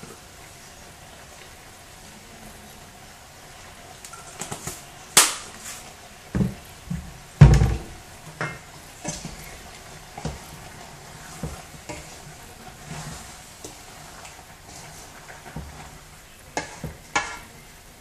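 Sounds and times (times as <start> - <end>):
wooden spoon stirring metal pot: 4.1 - 18.0.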